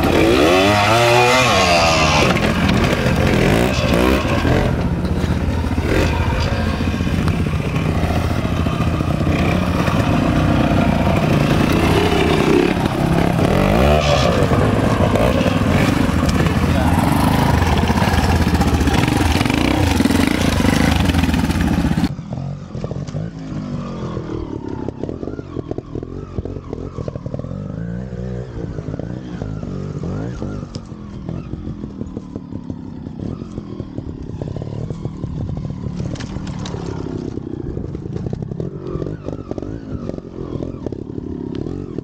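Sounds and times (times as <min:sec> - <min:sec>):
motorcycle engine revving: 0:00.0 - 0:42.0.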